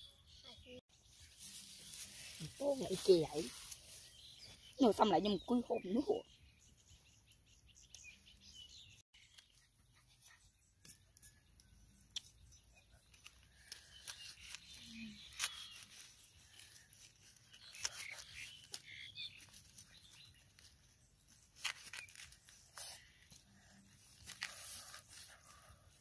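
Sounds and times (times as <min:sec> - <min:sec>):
leaves rustling: 0:01.0 - 0:05.4, 0:13.3 - 0:25.6.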